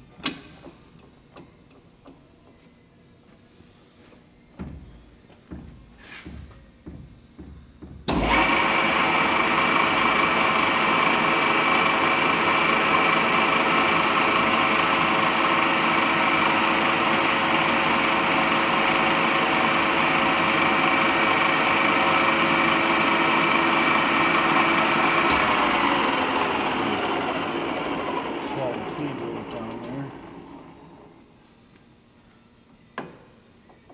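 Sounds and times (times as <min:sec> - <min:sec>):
lathe gears whining: 0:08.1 - 0:31.2.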